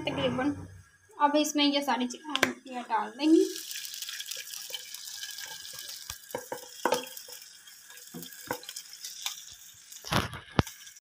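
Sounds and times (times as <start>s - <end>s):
meat sizzling in a frying pan: 3.2s - 11.0s
soft knocks on a pan: 6.3s - 7.1s.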